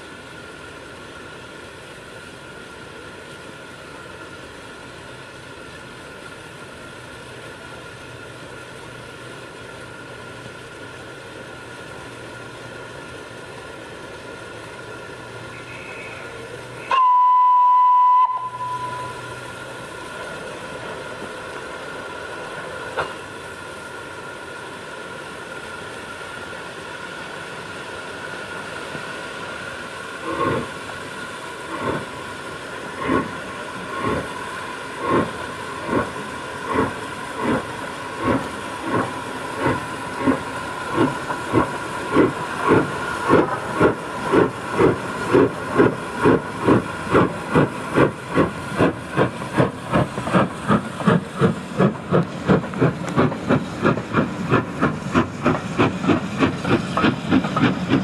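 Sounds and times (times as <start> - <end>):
steam hissing: 0.0 - 58.0
steam locomotive whistle: 15.5 - 19.4
heavy exhaust chuffs: 30.1 - 58.0.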